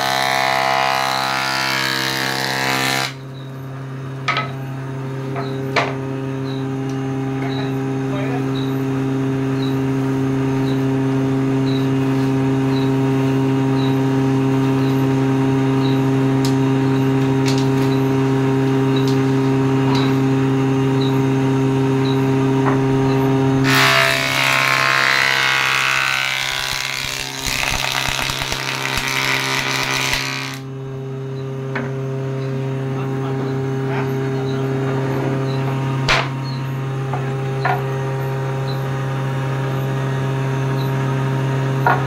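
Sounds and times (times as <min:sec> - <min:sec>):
board cut by planer cutter head: 0:00.0 - 0:03.2, 0:23.6 - 0:30.7.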